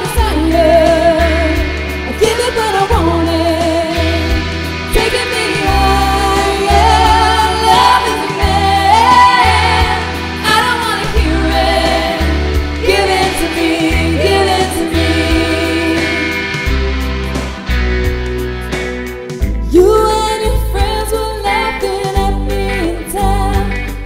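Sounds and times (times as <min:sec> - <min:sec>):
heavy sustained bass notes: 0:00.0 - 0:21.6
rock music with female vocals: 0:00.0 - 0:24.0.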